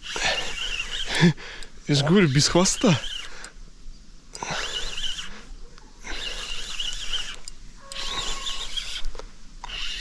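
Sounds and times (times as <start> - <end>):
fishing reel being cranked: 0.0 - 1.3, 1.9 - 3.5, 4.3 - 5.3, 6.1 - 10.0.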